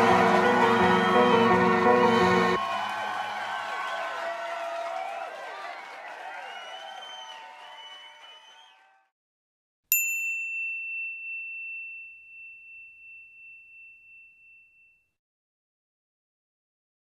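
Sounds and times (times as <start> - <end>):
bell-like chime ringing: 9.9 - 15.1.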